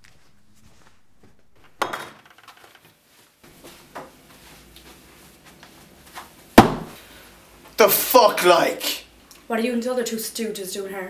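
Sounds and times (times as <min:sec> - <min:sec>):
sharp knocks: 0:06.6 - 0:07.0.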